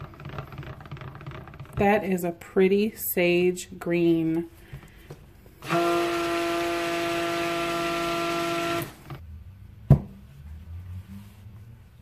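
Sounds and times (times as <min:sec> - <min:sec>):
stick blender whining: 0:05.6 - 0:09.2.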